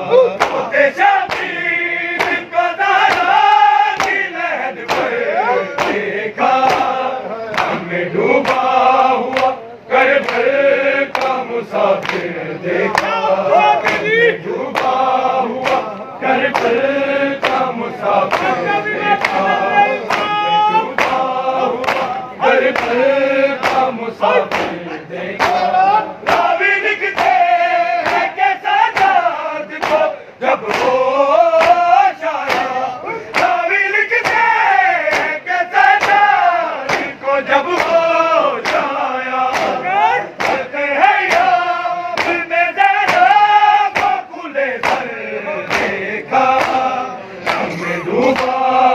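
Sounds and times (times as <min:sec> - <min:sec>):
men chanting in unison: 0:00.0 - 0:48.9
hands slapping bare chests: 0:00.4 - 0:00.7, 0:01.3 - 0:01.6, 0:02.2 - 0:02.4, 0:03.1 - 0:04.2, 0:04.8 - 0:05.2, 0:05.8 - 0:06.0, 0:06.6 - 0:07.8, 0:11.1 - 0:11.4, 0:14.7 - 0:15.0, 0:15.6 - 0:15.9, 0:16.5 - 0:16.8, 0:17.4 - 0:17.7, 0:18.3 - 0:18.6, 0:20.1 - 0:23.0, 0:23.6 - 0:23.9, 0:24.5 - 0:24.8, 0:25.4 - 0:25.6, 0:27.2 - 0:28.3, 0:28.9 - 0:30.1, 0:30.7 - 0:31.0, 0:31.6 - 0:33.6, 0:34.2 - 0:34.5, 0:35.1 - 0:38.0, 0:38.6 - 0:39.8, 0:40.4 - 0:40.7, 0:41.3 - 0:41.6, 0:42.2 - 0:42.4, 0:43.1 - 0:44.2, 0:44.8 - 0:45.1, 0:45.7 - 0:48.6.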